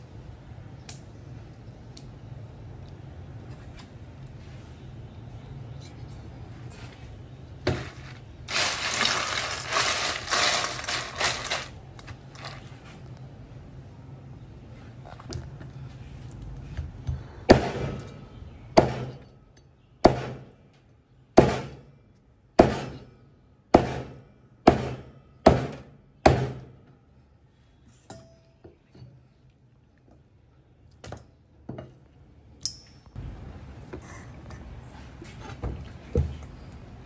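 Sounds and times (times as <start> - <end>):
cleaver chopping on cutting board: 24.7 - 26.6.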